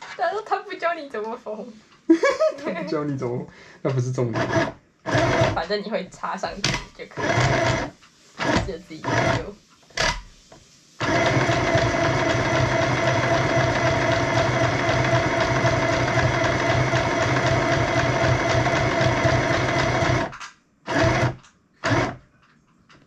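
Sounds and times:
sewing machine stitching: 0:03.9 - 0:05.8, 0:06.6 - 0:10.2, 0:11.0 - 0:22.2.

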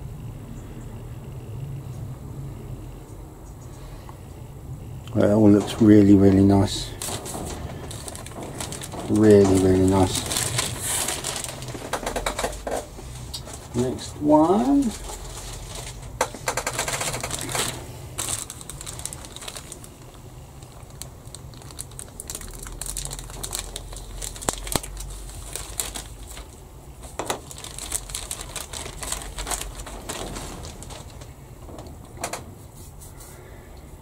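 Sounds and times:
plastic bag crinkling: 0:05.4 - 0:32.4
plastic parts clicking and tapping: 0:07.0 - 0:12.9, 0:16.2 - 0:18.3.

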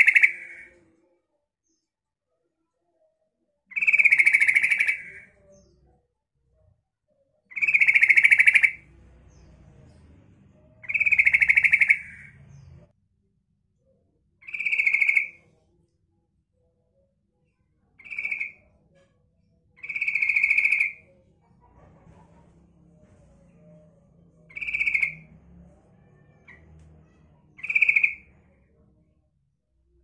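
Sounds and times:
bird chattering calls: 0:00.0 - 0:00.7, 0:03.7 - 0:05.3, 0:07.5 - 0:08.8, 0:10.8 - 0:12.8, 0:14.5 - 0:15.4, 0:19.8 - 0:21.0, 0:24.5 - 0:25.2, 0:26.3 - 0:28.3.

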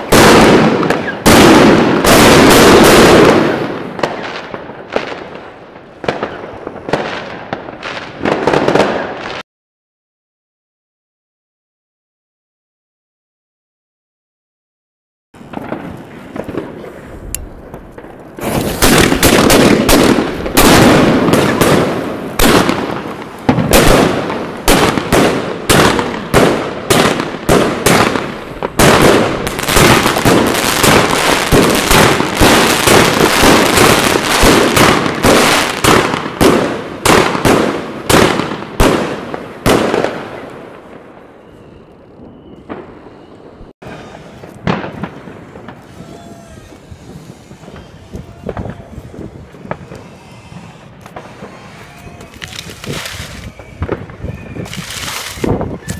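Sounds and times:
fireworks volley: 0:00.0 - 0:09.4, 0:15.4 - 0:55.9
sharp firework bang: 0:18.4 - 0:39.1.

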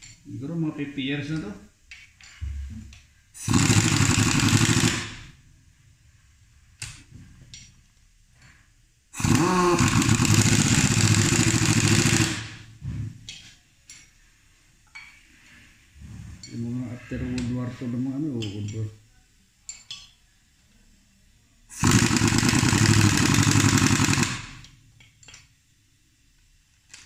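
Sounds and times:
pneumatic impact wrench hammering: 0:03.4 - 0:05.4, 0:09.2 - 0:13.5, 0:21.7 - 0:24.7.

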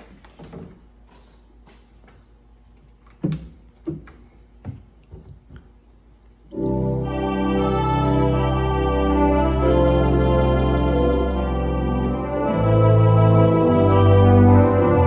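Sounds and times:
organ sustained chord: 0:06.5 - 0:15.0.

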